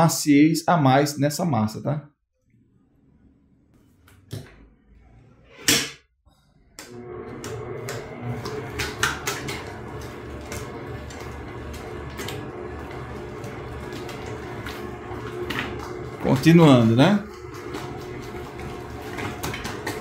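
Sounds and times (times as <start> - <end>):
stand mixer motor hum: 6.8 - 20.0
dough knocking in bowl: 7.8 - 10.7.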